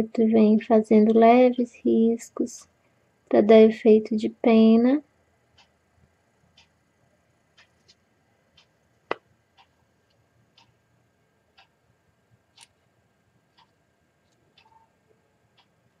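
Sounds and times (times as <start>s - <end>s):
clock ticking: 5.5s - 5.8s, 6.5s - 6.8s, 7.5s - 7.9s, 8.5s - 9.8s, 10.5s - 10.8s, 11.5s - 11.8s, 13.5s - 13.8s, 14.5s - 14.9s, 15.5s - 16.0s.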